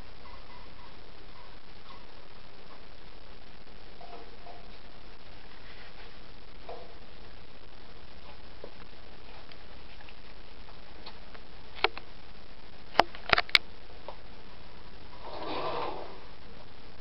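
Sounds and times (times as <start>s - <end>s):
steady hiss: 0.0s - 17.0s
rustling scrape: 5.3s - 6.2s, 15.2s - 16.3s.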